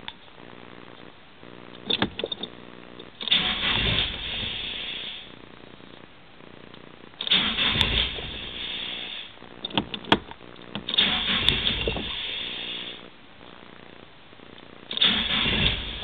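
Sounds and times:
sharp clicks: 0:01.7 - 0:04.5, 0:06.7 - 0:13.6
starter motor cranking engine: 0:03.2 - 0:05.3, 0:07.2 - 0:13.0, 0:14.9 - 0:16.0.

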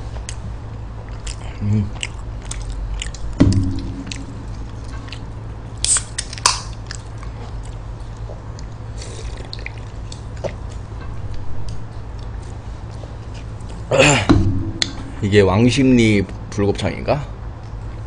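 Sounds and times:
chewing: 0:01.0 - 0:03.4, 0:04.1 - 0:13.9
brief low sound: 0:03.4 - 0:05.1
wet mouth clicks: 0:05.0 - 0:07.1.

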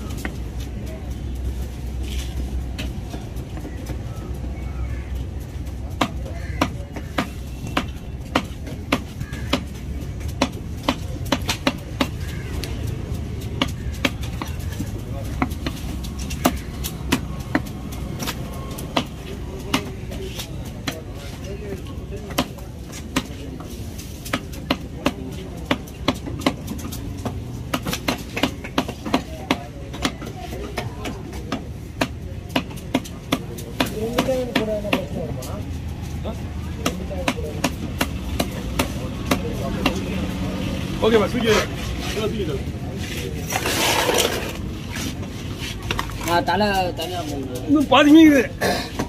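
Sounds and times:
knife chopping on wooden block: 0:06.0 - 0:12.3.

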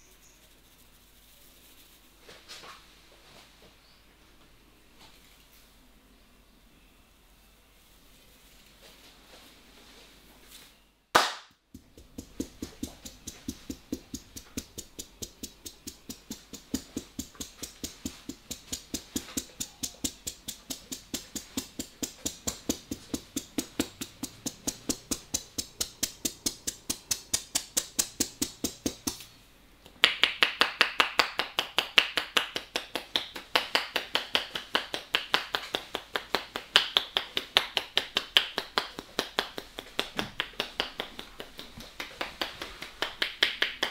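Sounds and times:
percussive massage blows: 0:11.2 - 0:29.2, 0:29.9 - 0:43.9
hand slap: 0:11.2 - 0:29.3, 0:29.9 - 0:43.9.

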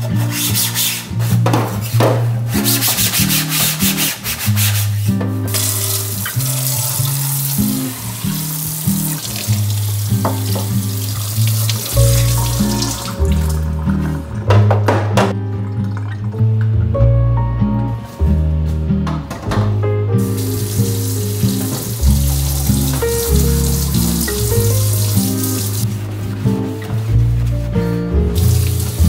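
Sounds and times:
soft background music: 0:00.0 - 0:29.0
sponge scrubbing plastic: 0:02.6 - 0:13.5, 0:20.3 - 0:29.0
water running in sink: 0:05.5 - 0:14.4, 0:20.2 - 0:26.0, 0:28.4 - 0:29.0.

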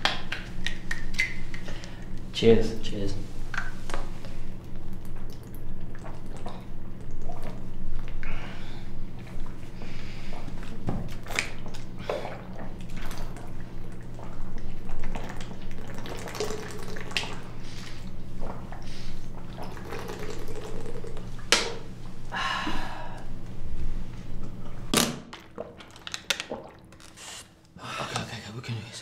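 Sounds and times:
steady low hum: 0:00.0 - 0:25.9
people gulping water: 0:04.7 - 0:08.4, 0:10.3 - 0:21.5, 0:25.4 - 0:27.0.

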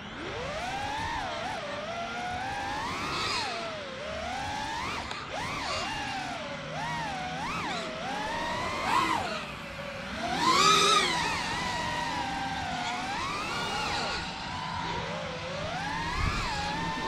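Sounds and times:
drone motors and propellers whining: 0:00.0 - 0:17.0.

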